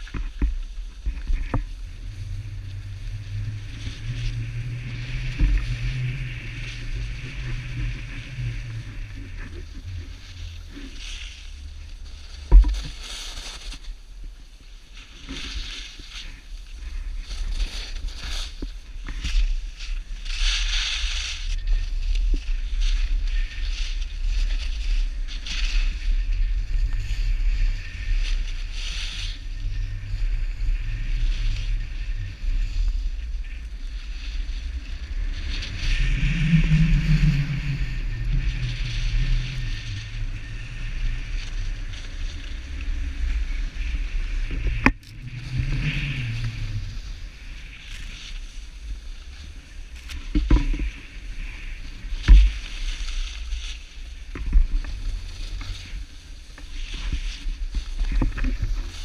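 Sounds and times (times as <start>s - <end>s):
skis scraping over snow: 0.0s - 59.0s
wind rumble on microphone: 0.0s - 59.0s.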